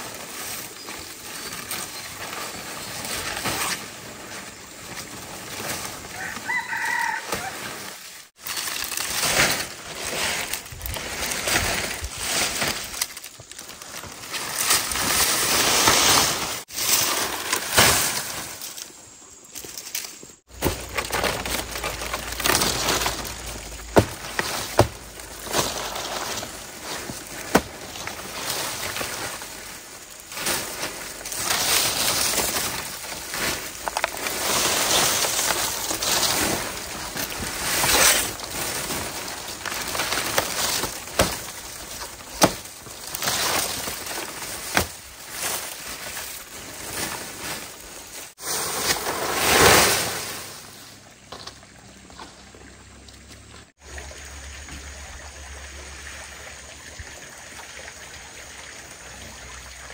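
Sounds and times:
palm fronds rustling and dragging: 0.0s - 55.3s
stiff stems snapping: 37.2s - 45.5s.

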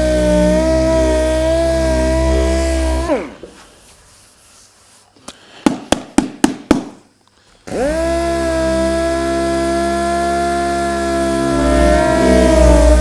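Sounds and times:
small power tool whining: 0.0s - 3.4s, 7.6s - 13.0s
rubbing strokes on car body: 0.8s - 6.2s.

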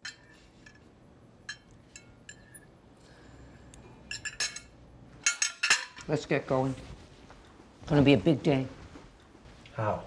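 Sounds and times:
spoons clinking on ceramic bowls: 0.0s - 0.8s, 1.4s - 2.7s, 4.0s - 6.1s.

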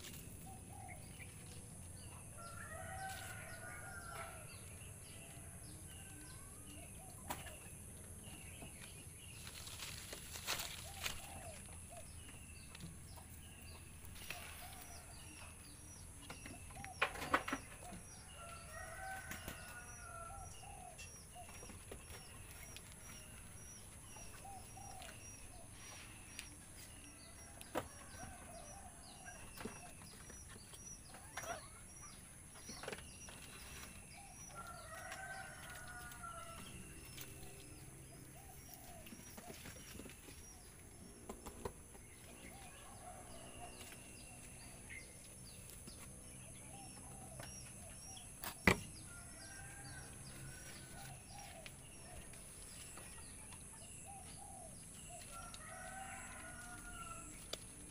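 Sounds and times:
chickens clucking: 30.6s - 33.9s.

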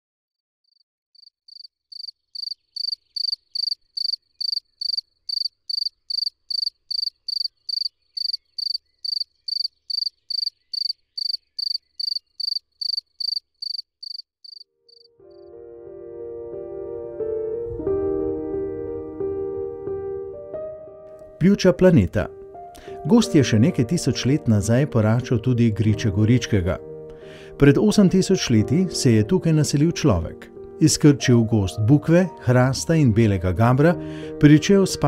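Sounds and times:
cricket chirping: 0.7s - 15.5s
soft piano music: 15.1s - 35.0s.

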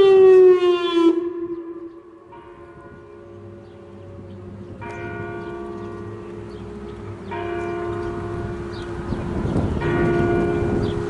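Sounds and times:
bell chimes ringing: 2.2s - 11.0s.

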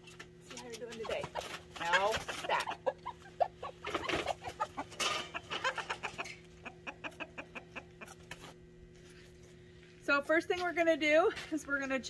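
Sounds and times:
hens clucking: 0.7s - 8.6s.

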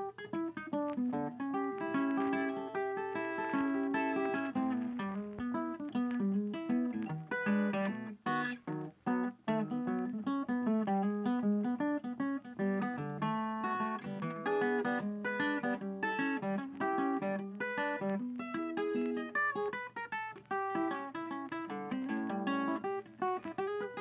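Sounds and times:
acoustic guitar picking: 0.0s - 24.0s.

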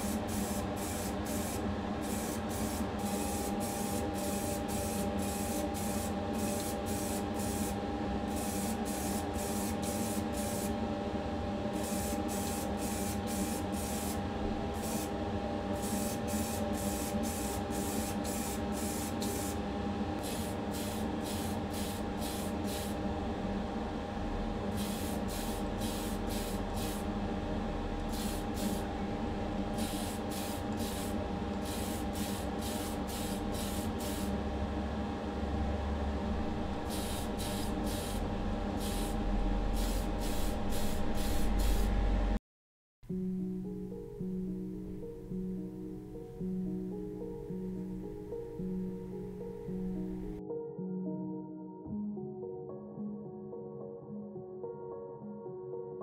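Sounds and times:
steady hum: 0.0s - 42.4s
spray can hissing bursts: 20.2s - 23.0s, 24.8s - 27.0s, 28.1s - 28.8s, 29.8s - 34.3s, 36.9s - 38.2s, 38.8s - 41.9s.

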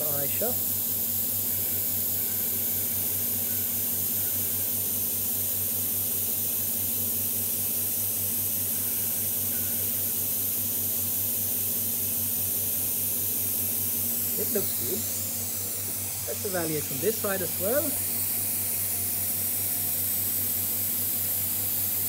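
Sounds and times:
vacuum pump hissing: 0.0s - 22.0s.

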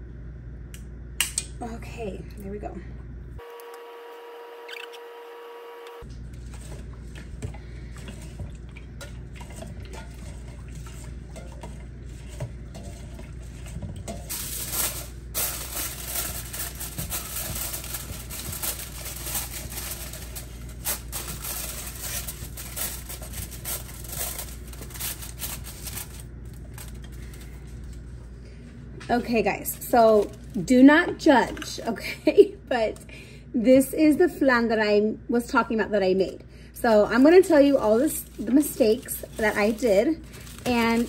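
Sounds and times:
hands mixing rice in water: 6.1s - 28.3s, 36.9s - 41.0s
aluminium foil crinkling: 9.9s - 28.4s, 29.0s - 32.0s, 36.9s - 41.0s.

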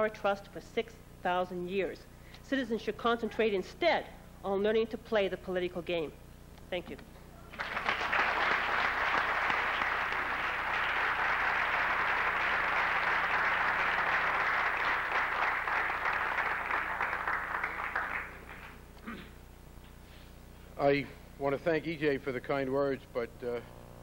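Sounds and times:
audience applauding: 7.5s - 18.8s.

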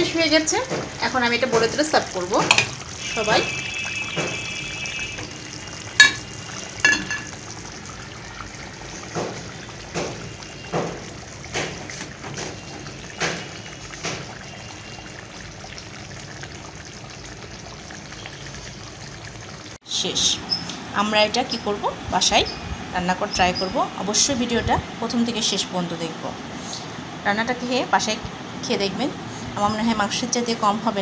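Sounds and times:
curry sizzling in a pan: 0.0s - 27.0s
spatula scraping and knocking pan: 2.4s - 2.8s.

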